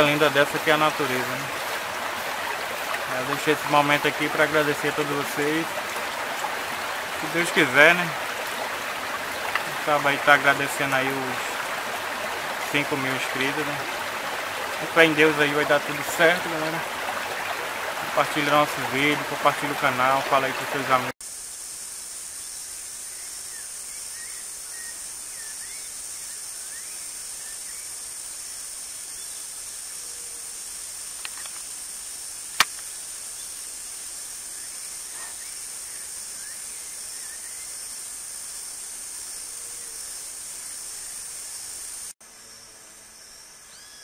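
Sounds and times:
sharp click: 32.6 - 32.9
faint bird chirps: 43.6 - 44.0.

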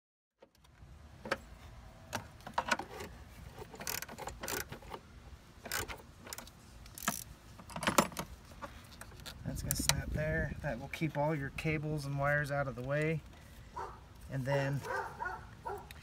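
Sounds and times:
metallic clicks of wrench and ratchet: 3.8 - 5.0, 5.6 - 8.2.

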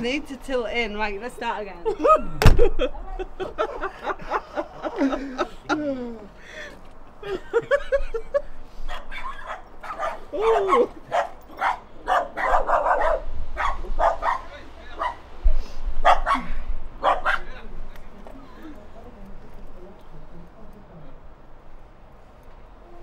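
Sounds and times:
dog barking and yipping: 8.9 - 15.3, 16.0 - 17.6.

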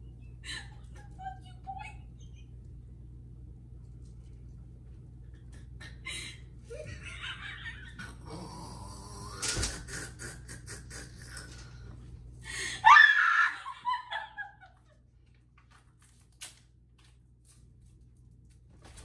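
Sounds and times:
woman laughing: 0.3 - 2.6, 5.4 - 8.2, 9.8 - 11.7, 12.5 - 15.1
high-pitched shrieking laugh: 12.8 - 14.7.

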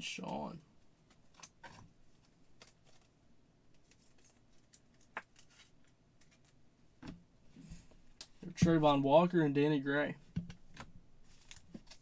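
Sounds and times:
card wrappers rustling: 3.7 - 6.6, 11.2 - 12.0.

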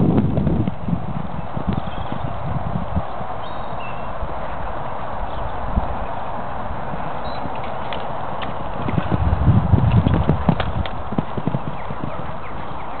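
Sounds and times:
horse hoofbeats: 3.9 - 13.0.

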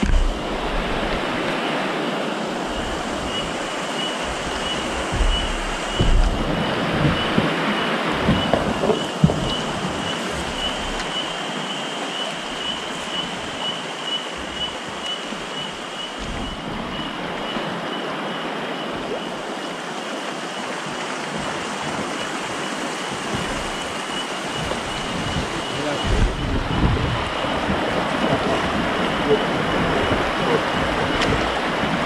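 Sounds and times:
river rushing over rapids: 0.0 - 32.0
pulsing high tone: 2.7 - 11.6.

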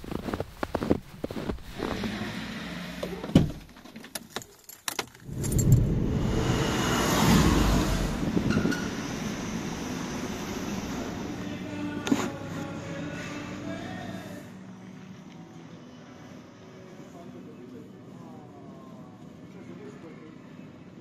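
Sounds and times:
boots crunching through snow: 0.0 - 2.0
car driving slowly: 5.2 - 15.5.

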